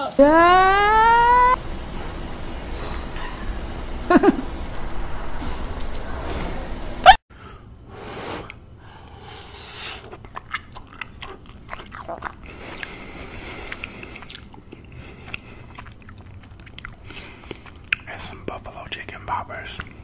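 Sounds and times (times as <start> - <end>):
loud pitched rise: 0.0 - 2.8
chewing and crunching: 10.0 - 18.4.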